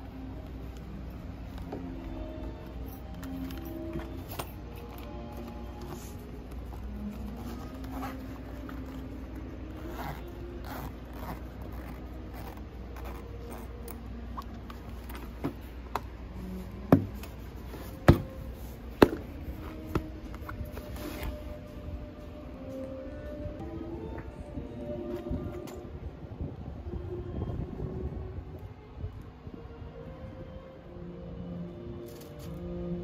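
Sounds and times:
cloth rustling and scraping: 0.1 - 22.9.

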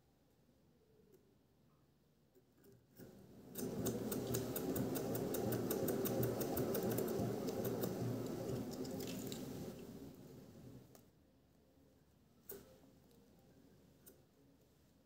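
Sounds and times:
fast sharp clicks: 3.6 - 9.7.

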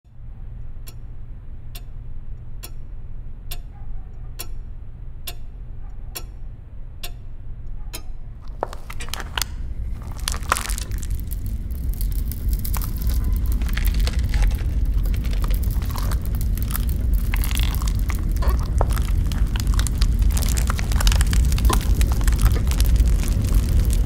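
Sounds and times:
low hum: 0.1 - 24.0
clock ticking: 0.6 - 9.6
crackling and crinkling: 8.4 - 24.0.

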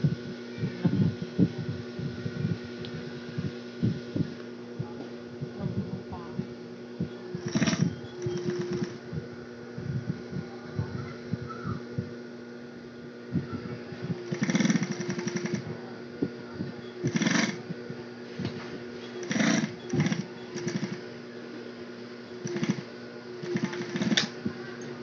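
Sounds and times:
steady hum: 0.0 - 25.0
sewing machine stitching: 7.4 - 9.0, 14.2 - 15.6, 17.0 - 17.6, 19.1 - 21.0, 22.4 - 24.4.

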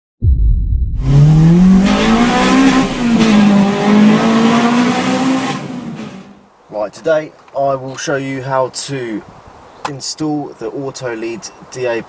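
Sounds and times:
car engine revving: 1.0 - 6.4.

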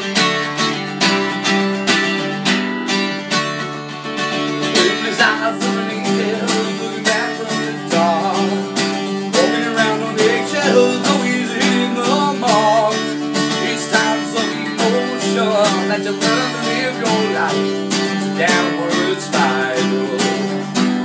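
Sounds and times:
acoustic guitar strumming: 0.0 - 21.0
man singing: 4.6 - 21.0.

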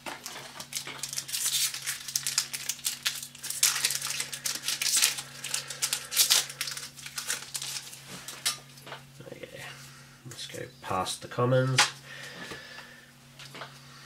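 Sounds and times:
foil wrapper crinkling and tearing: 0.1 - 8.6.

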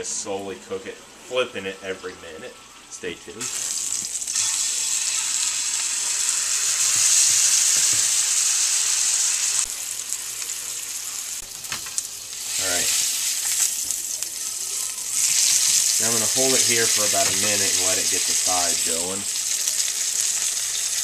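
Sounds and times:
steak sizzling in a frying pan: 3.4 - 21.0.

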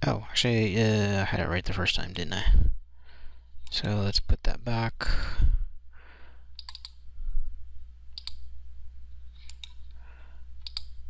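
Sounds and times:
mouse buttons clicking: 6.6 - 7.0, 8.2 - 8.5, 9.4 - 9.8, 10.6 - 11.0.

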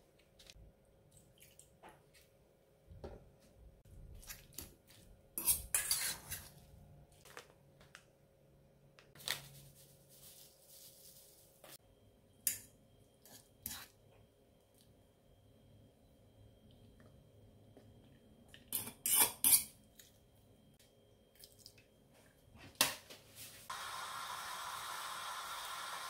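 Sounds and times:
fork scraping metal bowl: 5.4 - 6.6.

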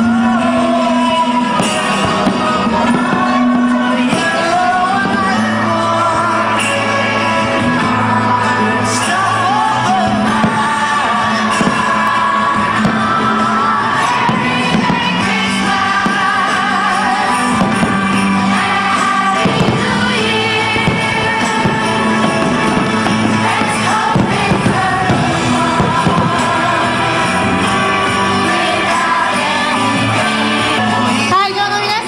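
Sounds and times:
song with singing vocals: 0.0 - 32.0.

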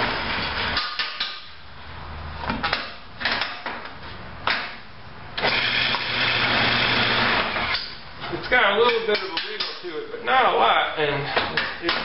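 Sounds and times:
wood lathe humming: 5.5 - 7.7.

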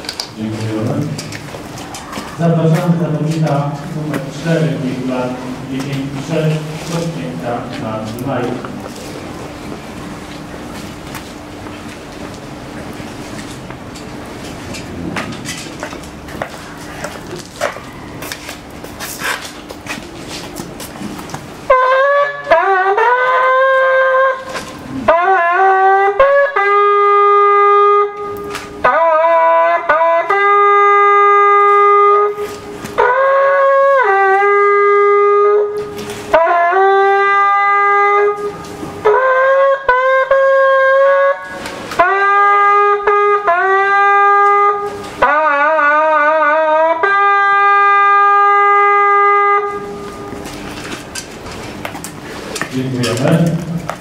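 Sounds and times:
shepherd's horn calls: 21.6 - 50.6.

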